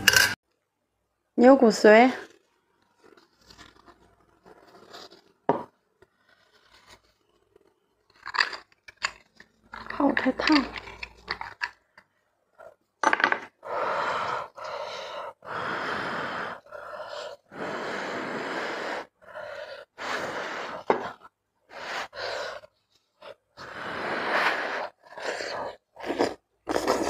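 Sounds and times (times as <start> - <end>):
person blowing puffs of breath: 13.6 - 21.1, 23.6 - 27.0.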